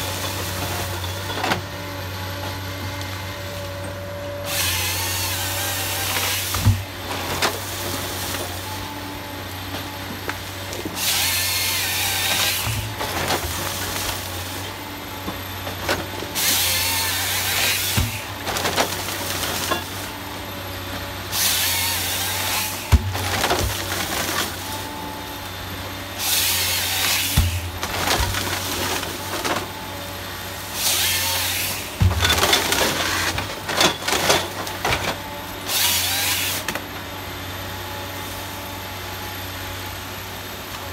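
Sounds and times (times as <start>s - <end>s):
chainsaw cutting log: 9.8s - 36.9s.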